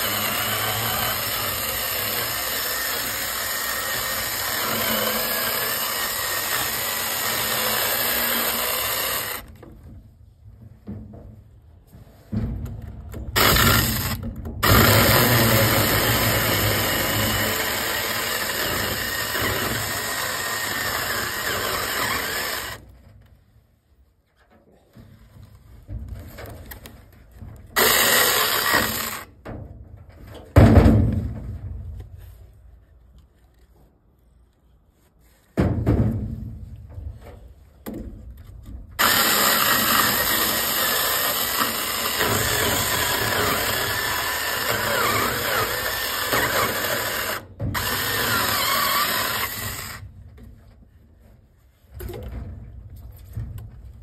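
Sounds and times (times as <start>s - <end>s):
mini chainsaw cutting log: 0.0s - 9.6s, 13.4s - 22.8s, 27.8s - 29.3s, 39.0s - 50.1s.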